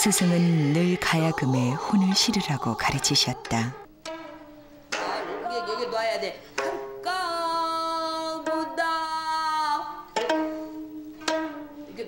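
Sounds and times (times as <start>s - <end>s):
plucked zither strings: 3.8s - 7.4s, 8.0s - 12.0s
woman singing long note: 7.0s - 10.0s.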